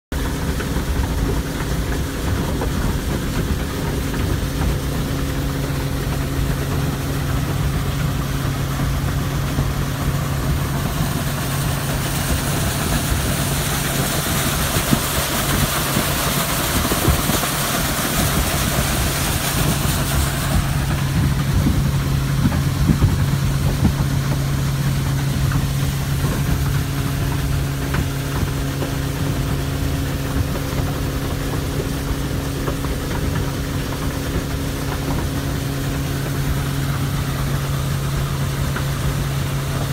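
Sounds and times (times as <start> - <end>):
outboard engine humming: 0.1 - 39.9
water rushing along hull: 0.1 - 39.9
wind hissing: 9.2 - 23.8.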